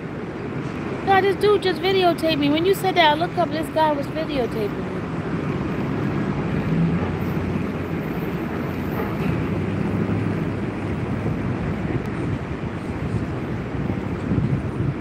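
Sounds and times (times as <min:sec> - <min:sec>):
city traffic rumble: 0:00.0 - 0:15.0.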